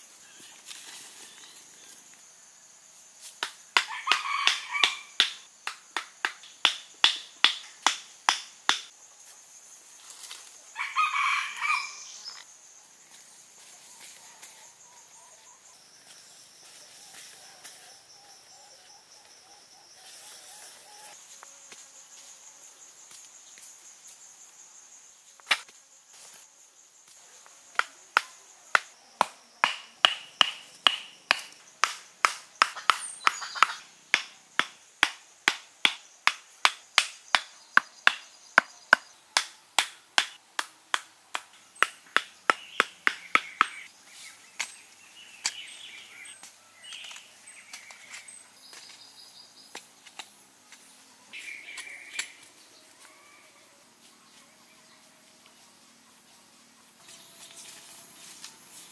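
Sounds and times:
insects whining: 0.0 - 39.9
wooden stakes knocked into soil: 27.7 - 43.8
birds chirping: 41.7 - 50.1, 50.7 - 52.8.

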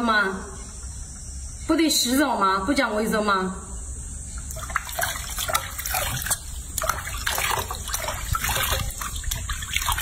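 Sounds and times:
water splashing in a sink: 4.5 - 10.0.

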